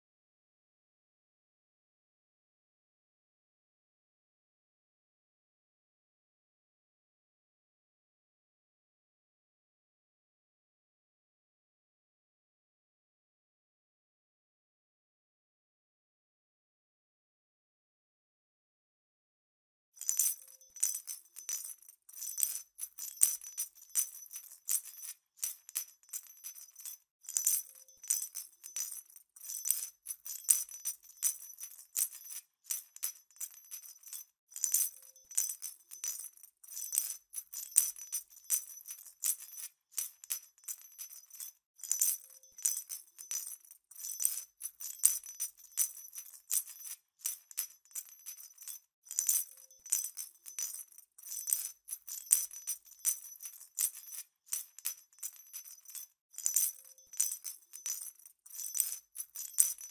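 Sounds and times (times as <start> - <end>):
jingle bells shaking: 20.0 - 59.9.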